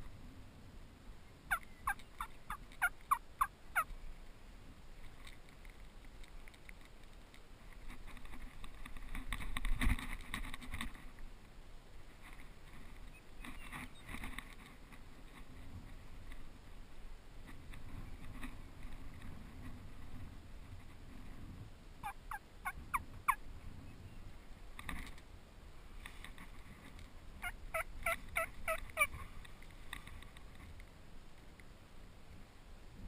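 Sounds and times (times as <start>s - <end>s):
rustling in dry grass: 0.0s - 33.0s
turkey yelps: 1.5s - 3.9s, 22.0s - 23.4s.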